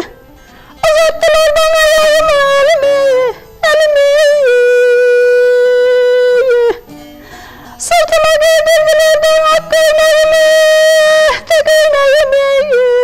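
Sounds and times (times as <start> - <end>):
lute playing along: 0.0 - 13.0
high voice singing a hymn: 0.8 - 6.9, 7.8 - 13.0.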